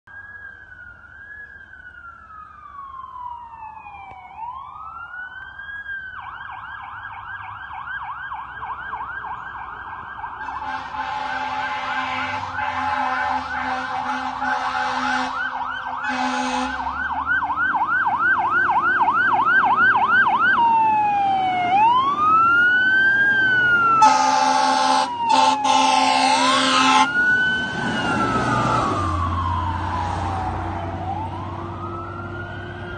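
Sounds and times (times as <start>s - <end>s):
fire truck siren: 0.0s - 32.9s
truck engine passing: 8.5s - 32.9s
truck horn blasts: 10.4s - 16.9s, 24.0s - 27.1s.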